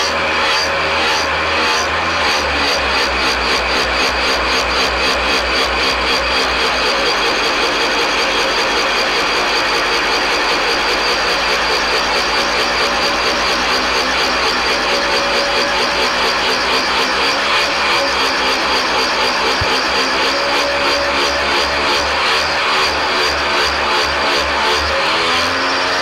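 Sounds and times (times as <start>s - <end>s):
milling machine whine: 0.0s - 26.0s
fly cutter cutting metal: 13.2s - 25.9s.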